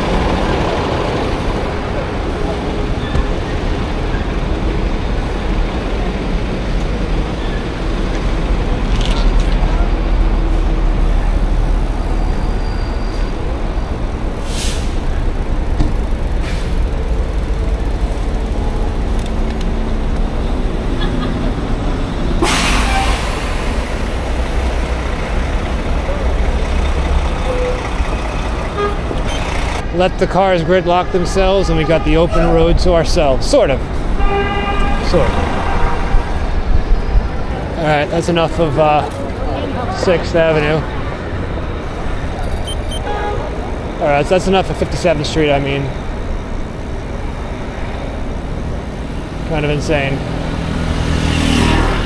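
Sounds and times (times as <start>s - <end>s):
city traffic noise: 0.0s - 52.0s.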